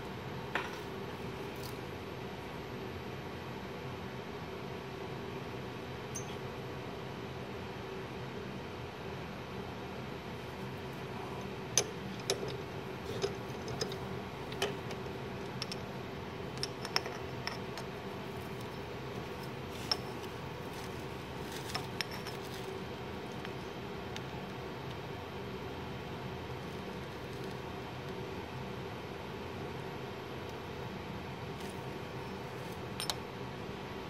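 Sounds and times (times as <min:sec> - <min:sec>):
steady machine hum: 0:00.0 - 0:34.0
light metallic clinks: 0:06.1 - 0:06.4.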